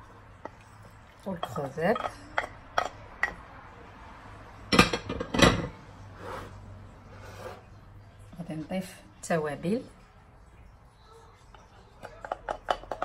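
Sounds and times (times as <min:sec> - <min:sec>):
dishes clattering: 0:00.0 - 0:03.4, 0:04.7 - 0:05.9, 0:11.5 - 0:13.0.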